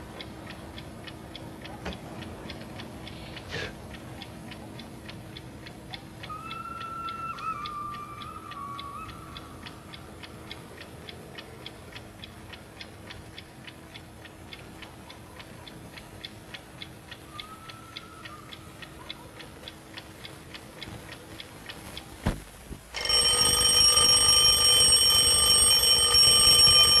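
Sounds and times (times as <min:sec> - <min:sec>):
alarm clock ticking: 0:00.0 - 0:03.2, 0:09.4 - 0:17.2, 0:22.9 - 0:27.0.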